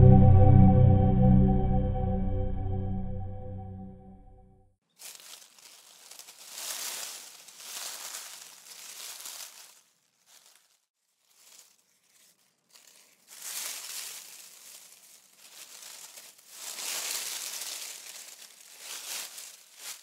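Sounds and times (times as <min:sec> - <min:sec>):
crackling rustling noise: 0:04.8 - 0:20.0.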